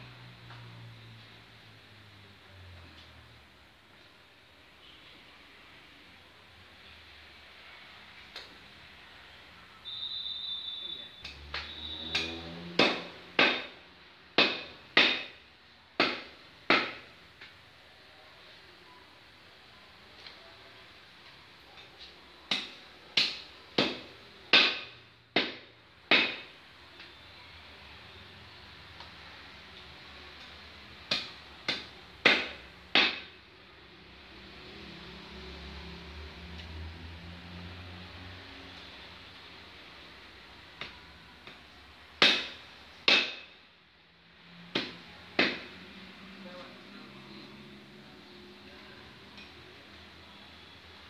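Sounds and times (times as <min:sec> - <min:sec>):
machete chopping meat and bone: 0:11.3 - 0:13.8, 0:14.4 - 0:15.4, 0:16.0 - 0:17.1, 0:22.5 - 0:26.5, 0:31.1 - 0:33.4, 0:42.2 - 0:43.5, 0:44.7 - 0:45.7.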